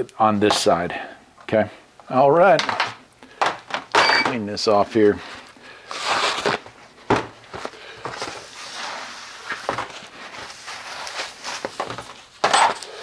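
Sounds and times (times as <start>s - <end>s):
paper rustling and rubbing: 5.2s - 6.7s, 7.5s - 12.4s
paper towel tearing: 5.8s - 6.7s, 8.2s - 11.8s.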